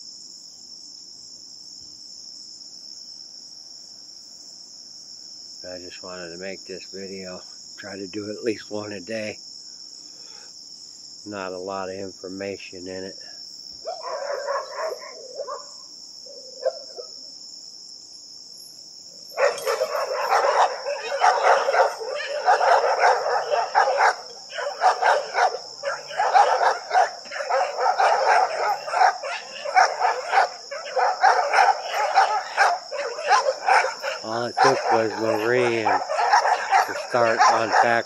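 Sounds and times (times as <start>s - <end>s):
crickets chirring: 0.0s - 38.0s
dogs barking: 13.8s - 17.2s, 19.3s - 38.0s.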